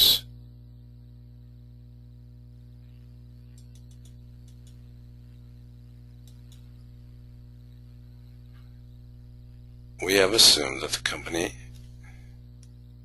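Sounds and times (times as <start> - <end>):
electrical mains hum: 0.0 - 13.0
faint clicks: 3.5 - 4.9, 6.2 - 6.8, 12.6 - 12.8.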